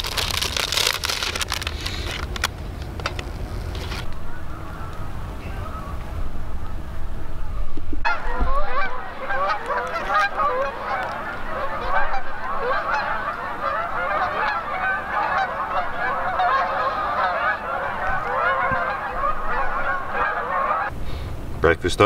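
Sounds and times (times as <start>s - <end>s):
geese honking: 3.9s - 20.9s.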